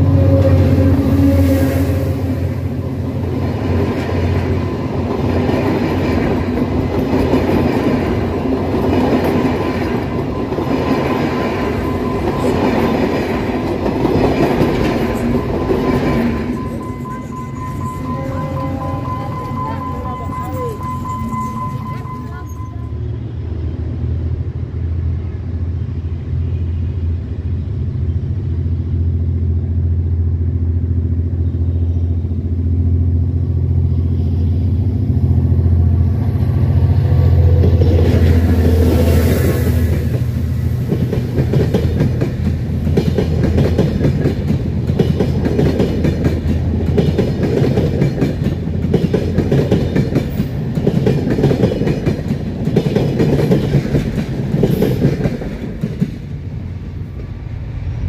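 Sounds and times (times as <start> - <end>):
diesel locomotive engine drone: 0.0 - 58.0
train wheels clattering on rails: 3.1 - 22.4, 37.4 - 57.4.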